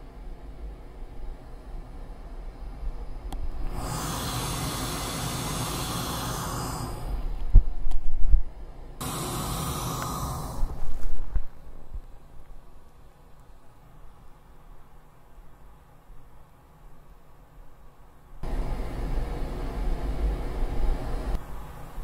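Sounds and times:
rushing hiss with low rumble: 0.0 - 12.4.

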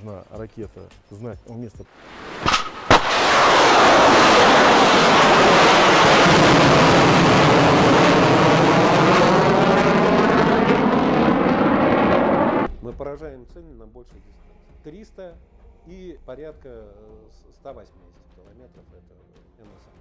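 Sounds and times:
missile launch bang: 2.0 - 12.7
rocket booster roar: 2.0 - 12.7.

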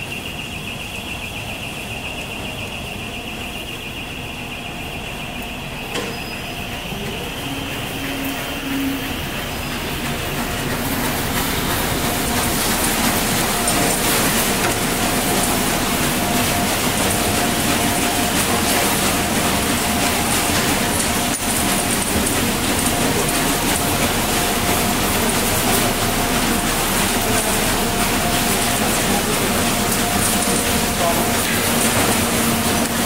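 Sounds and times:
conveyor machinery running: 0.0 - 33.0.

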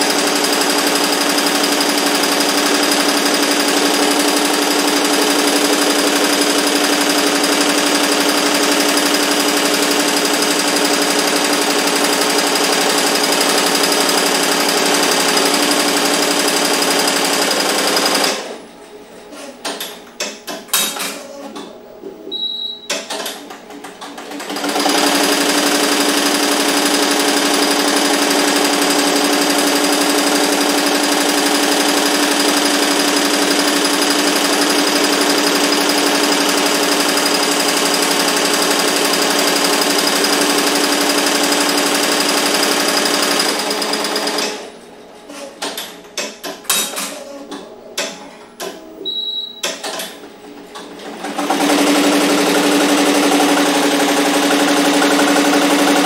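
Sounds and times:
embroidery machine stitching: 0.0 - 18.6, 19.4 - 56.0
machine clicks: 19.6 - 21.7.

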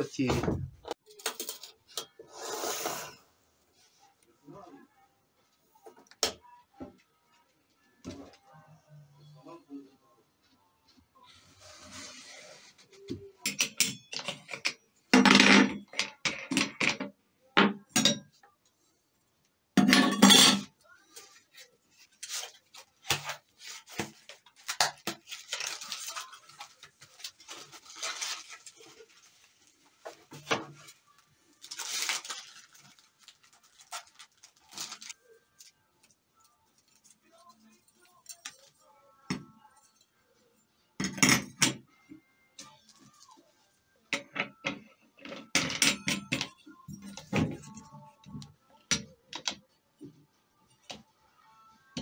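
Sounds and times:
packaging rustling and crinkling: 22.1 - 36.2.

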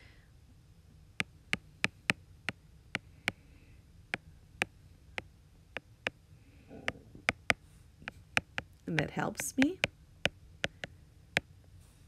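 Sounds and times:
stylus tapping on glass screen: 10.6 - 11.5.

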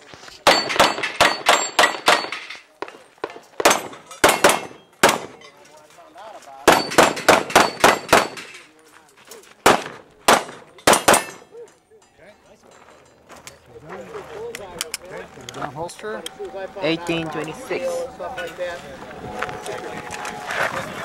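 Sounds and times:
steel targets clanging: 0.4 - 2.8, 3.6 - 5.7, 6.7 - 8.7, 10.4 - 13.2
handgun shots: 3.6 - 5.4, 6.7 - 8.6, 9.7 - 11.4.

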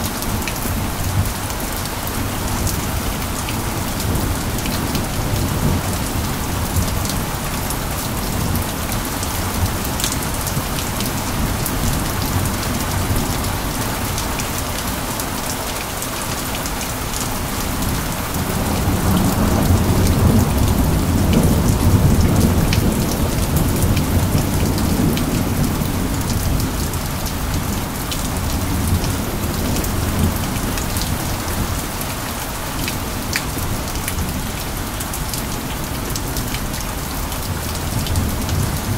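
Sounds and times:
rain drops ticking on surface: 0.0 - 38.9
low rumble of thunder: 2.2 - 13.8, 17.8 - 31.8.

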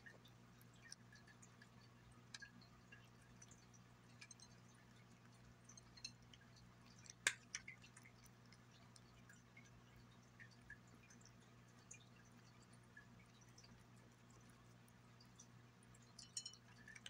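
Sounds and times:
cat licking and chewing: 0.0 - 17.0
clicks on glass plate: 16.2 - 17.0.

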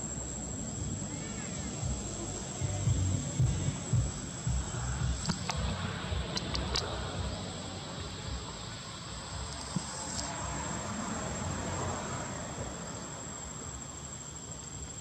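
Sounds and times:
insects droning: 0.0 - 15.0
low rumbling thumps: 0.7 - 9.9
faint clicks: 5.1 - 7.2.

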